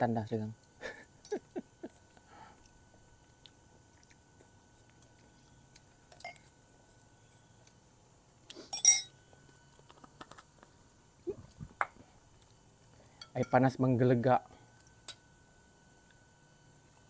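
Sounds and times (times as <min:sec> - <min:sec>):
cups and utensils clinking: 0:08.7 - 0:09.1.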